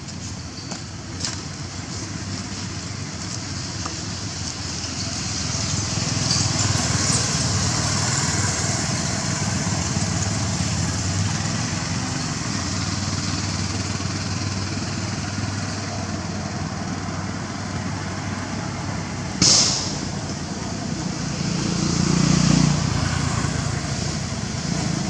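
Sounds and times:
motor vehicle engine droning: 0.4s - 25.0s
high hiss: 19.4s - 20.3s.

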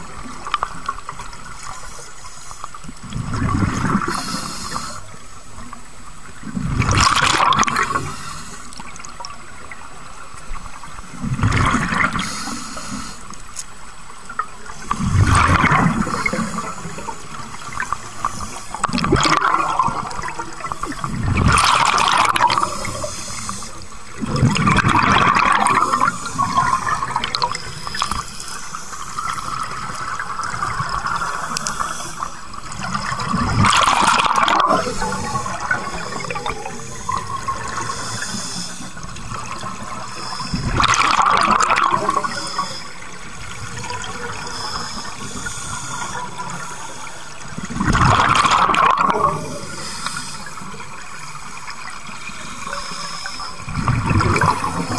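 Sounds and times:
regulator hiss: 4.0s - 5.6s, 12.1s - 13.8s, 22.5s - 24.0s, 31.0s - 33.1s, 34.8s - 39.2s, 39.9s - 40.8s, 42.2s - 47.6s, 49.5s - 51.6s, 52.2s - 53.7s
bubbling exhaled air: 6.5s - 8.6s, 14.8s - 51.0s, 51.8s - 54.9s.

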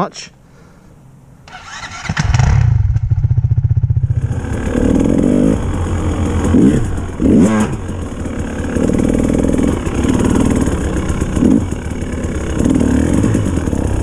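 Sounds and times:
dirt bike engine revving: 1.5s - 14.0s.

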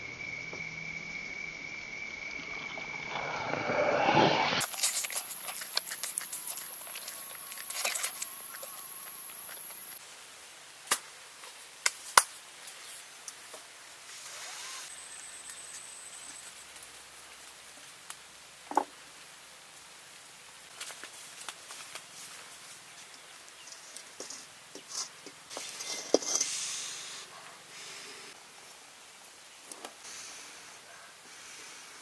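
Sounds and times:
crisp smacks and clicks: 4.6s - 10.0s, 20.7s - 22.5s
wet chewing: 4.6s - 10.0s.

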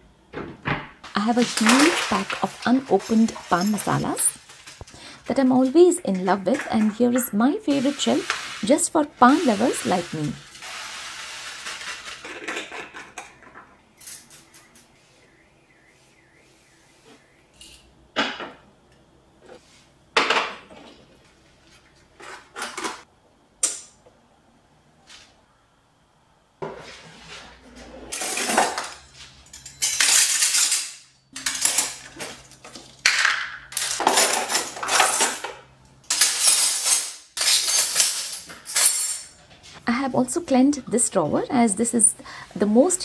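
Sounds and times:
metal utensils clattering: 1.2s - 14.8s, 28.1s - 39.4s.

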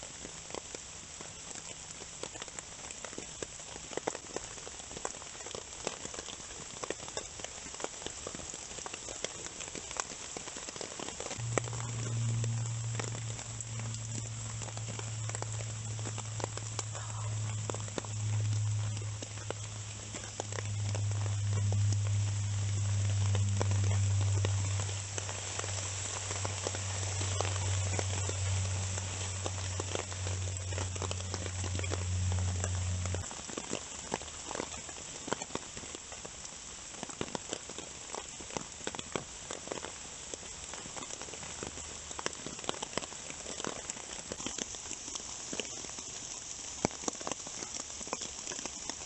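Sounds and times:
rain pattering on a tarp: 0.0s - 49.0s
low hum: 11.4s - 34.3s.

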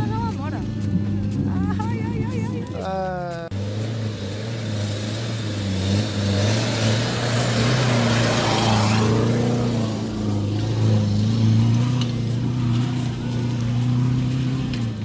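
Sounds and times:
off-road vehicle engine under load: 0.0s - 15.0s.

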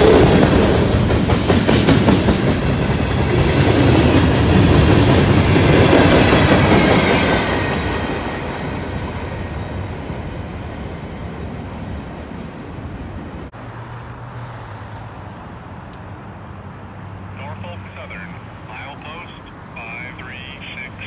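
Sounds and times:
freight train rumbling on rails: 0.0s - 13.5s.

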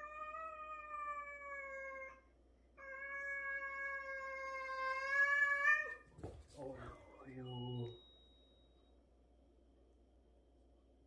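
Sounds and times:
cat yowling: 2.8s - 6.0s.

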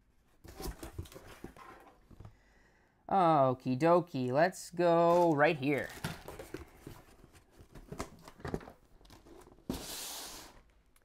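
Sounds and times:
packaged items rummaged in box: 5.1s - 9.9s.

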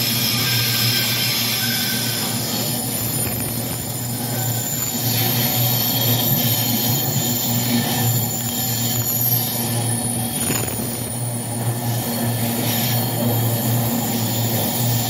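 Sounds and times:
high wheel squeal: 0.0s - 10.4s.

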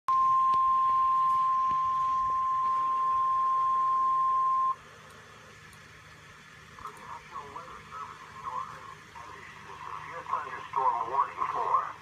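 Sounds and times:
loud steady alert tone beep: 0.1s - 4.8s.

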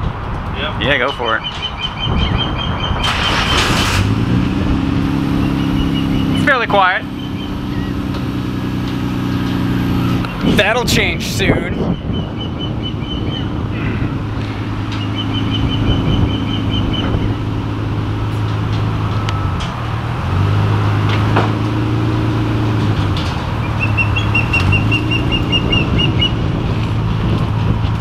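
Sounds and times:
car engine idling: 3.1s - 28.0s
rapid high chirping: 5.3s - 8.0s, 14.9s - 17.4s.

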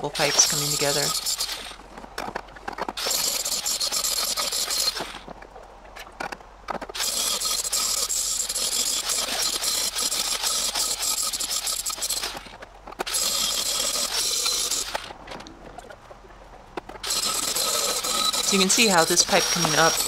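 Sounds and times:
welder crackling: 0.0s - 5.2s, 6.2s - 15.2s, 16.8s - 20.0s.

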